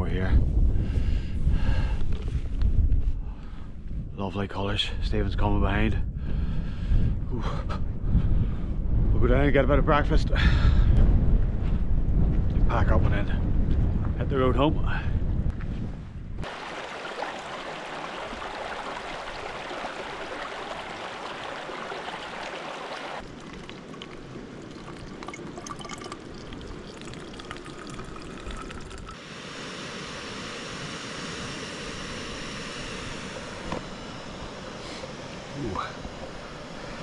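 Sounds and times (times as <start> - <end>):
water trickling through filter: 16.4 - 29.2.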